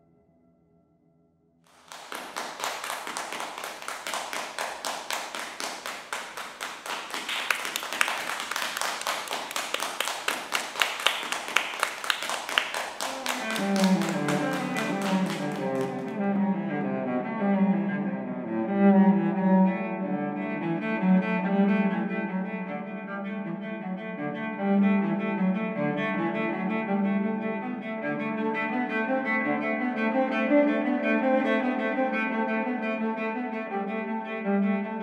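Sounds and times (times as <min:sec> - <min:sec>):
audience applause: 0:01.7 - 0:16.3
cello bowed notes: 0:13.0 - 0:35.0.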